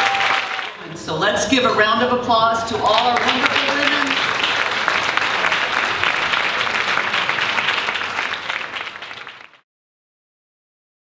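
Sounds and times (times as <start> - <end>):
audience applauding: 0.0 - 0.9, 2.8 - 9.6.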